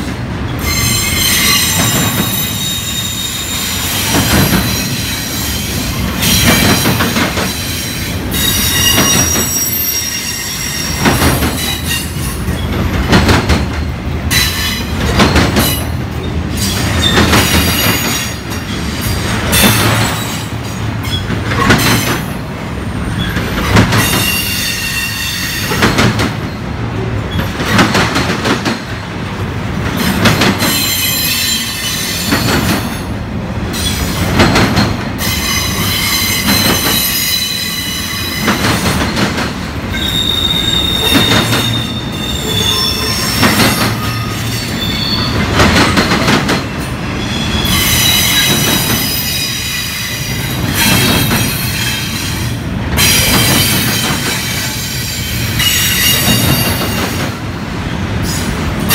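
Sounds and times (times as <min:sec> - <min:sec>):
train rumble: 0:00.0 - 0:58.9
train wheels clacking over rail joints: 0:00.6 - 0:22.4, 0:23.2 - 0:26.6, 0:27.3 - 0:29.1, 0:29.7 - 0:33.1, 0:33.8 - 0:47.0, 0:47.6 - 0:57.4
high-pitched wheel squeal: 0:39.9 - 0:45.4.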